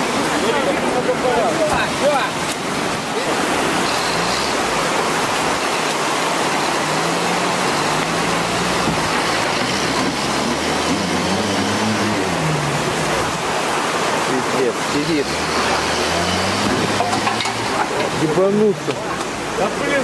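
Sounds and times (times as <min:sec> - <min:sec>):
engine labouring in mud: 0:00.0 - 0:20.0
loud steady rushing noise: 0:00.0 - 0:20.0.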